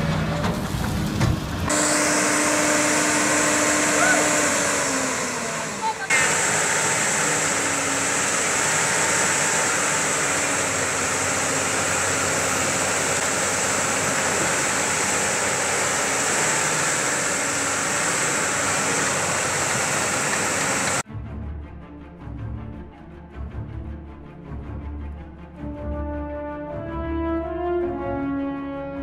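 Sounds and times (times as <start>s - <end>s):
excavator engine running: 0.0s - 21.0s.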